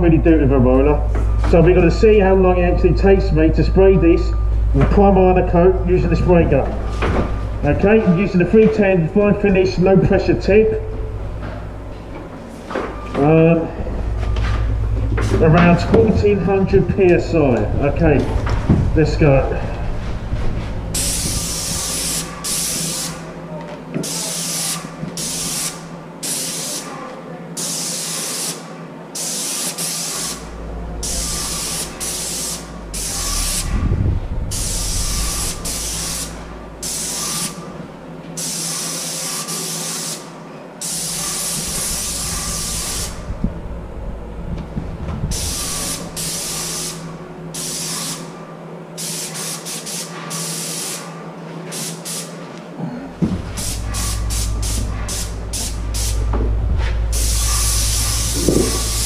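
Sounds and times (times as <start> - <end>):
steady low hum: 0.0 - 28.0, 28.6 - 38.9, 40.2 - 49.4, 51.1 - 59.0
paint sprayer hissing bursts: 21.0 - 23.3, 24.0 - 27.0, 27.6 - 33.8, 34.5 - 37.7, 38.4 - 43.3, 45.3 - 48.3, 49.0 - 52.4, 53.5 - 56.3, 57.1 - 59.0.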